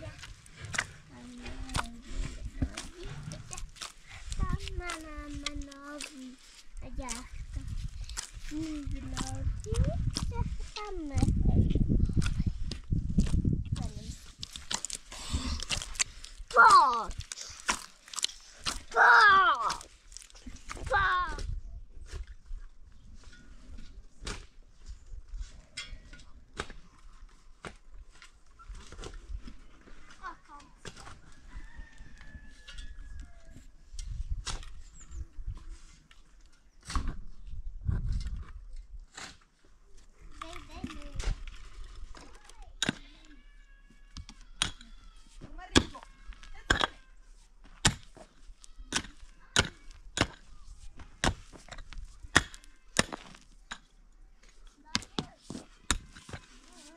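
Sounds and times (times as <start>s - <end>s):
pickaxe striking stony ground: 12.2s - 19.9s, 44.2s - 44.9s, 45.7s - 47.0s, 47.6s - 48.3s, 48.9s - 53.9s, 54.9s - 56.5s.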